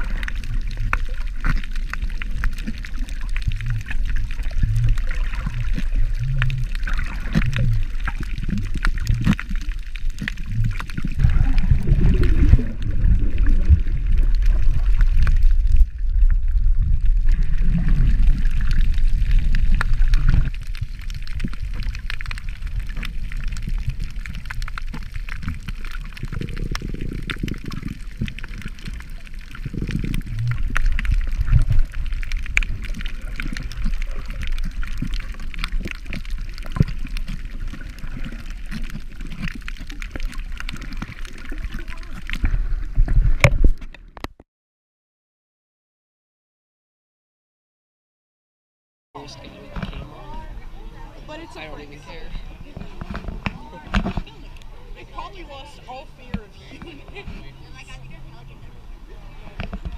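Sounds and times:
crackle of clicks: 0:00.0 - 0:44.4, 0:59.6 - 0:59.9
underwater sloshing and gurgling: 0:00.0 - 0:44.4, 0:49.2 - 0:59.9.

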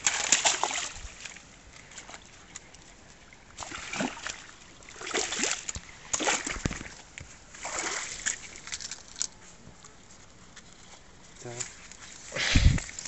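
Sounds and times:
feet wading through shallow water: 0:00.0 - 0:09.4.

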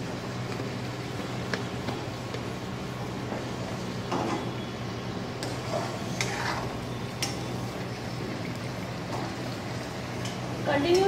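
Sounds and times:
steel spoon scraping a pot: 0:05.7 - 0:06.8.

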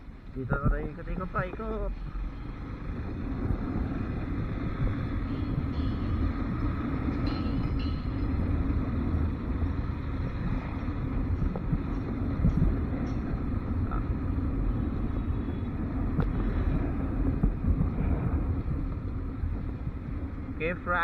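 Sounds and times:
motorcycle engine rumbling: 0:00.0 - 0:21.0
road noise: 0:00.0 - 0:21.0.

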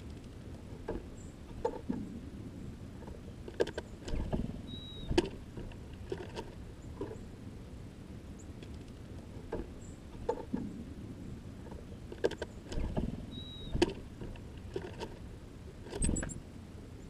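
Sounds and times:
bird feet and bills clicking: 0:00.0 - 0:02.2, 0:03.0 - 0:07.3, 0:08.5 - 0:10.8, 0:11.6 - 0:16.4
low thumps: 0:00.8 - 0:03.3
high bird chirps: 0:04.6 - 0:05.2, 0:13.3 - 0:13.9.

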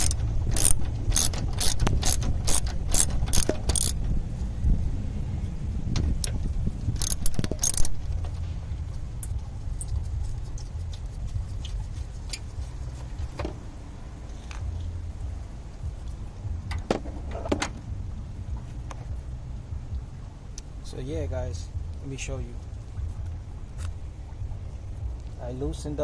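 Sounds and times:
metal tools clinking: 0:00.0 - 0:04.0, 0:07.0 - 0:08.0
low rumble: 0:00.0 - 0:26.0.

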